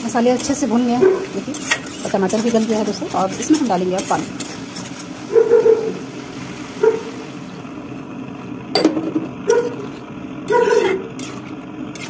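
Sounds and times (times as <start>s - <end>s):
metal spatula scraping pan: 0.4s - 5.4s, 9.7s - 12.0s.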